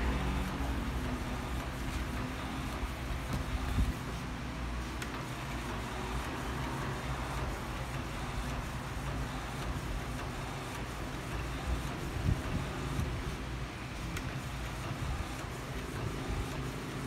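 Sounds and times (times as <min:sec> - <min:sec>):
printer whirring: 0:00.0 - 0:17.0.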